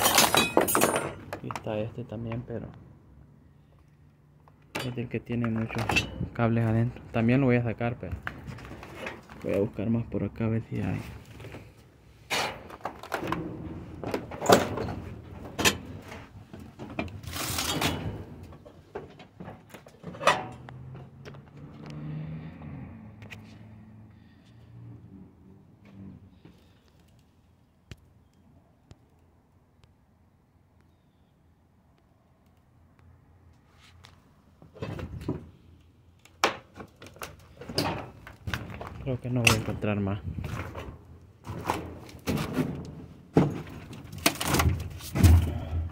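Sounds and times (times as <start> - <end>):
scrap clattering in metal dumpster: 12.3 - 16.3, 17.2 - 19.2, 40.5 - 45.9.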